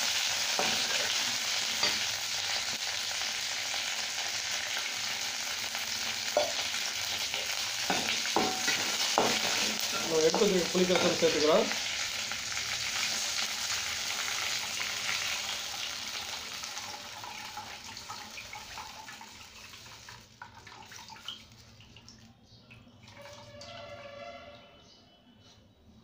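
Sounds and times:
thin liquid trickle: 16.8s - 24.2s.

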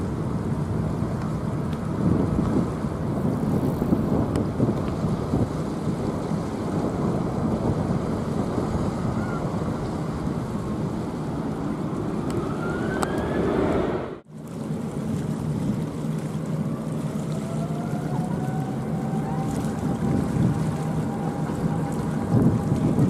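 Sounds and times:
jet engines on runway: 0.0s - 15.7s
jet engines roaring: 5.5s - 14.3s.

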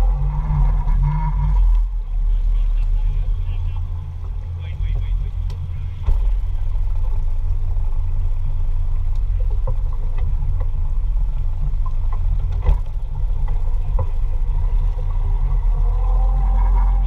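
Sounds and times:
boat engines idling: 0.0s - 17.0s
sharp thump: 6.0s - 6.6s, 12.5s - 13.0s.

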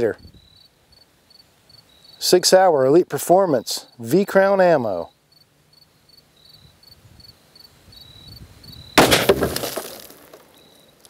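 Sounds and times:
insects chirping: 0.1s - 11.0s
pistol shot: 9.0s - 9.6s.

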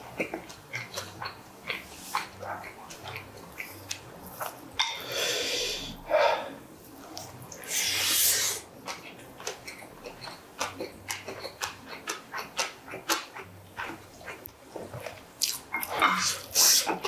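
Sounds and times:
man chewing with mouth smacks: 0.0s - 6.0s, 6.7s - 17.0s
sucking slurp: 7.5s - 8.7s.

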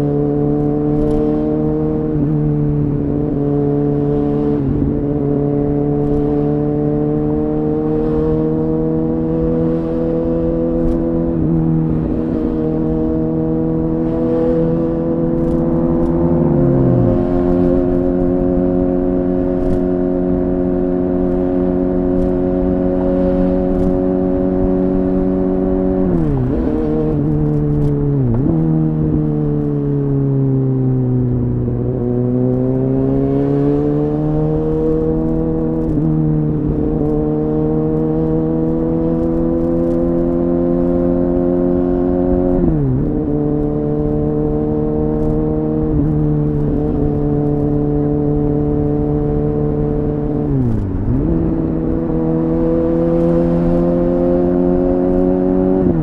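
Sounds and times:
motorcycle engine running: 0.0s - 29.7s.

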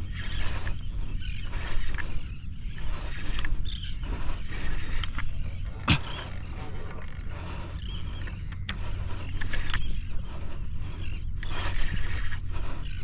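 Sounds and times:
fishing reel cranking: 0.0s - 5.4s, 8.2s - 12.9s
wind rumble on microphone: 0.0s - 13.0s
sharp reel clicks: 8.4s - 10.0s.

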